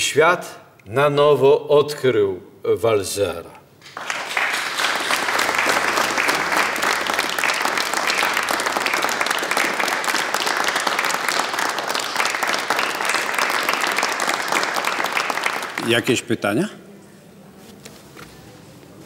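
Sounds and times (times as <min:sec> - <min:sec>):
audience applauding: 0:03.8 - 0:16.4.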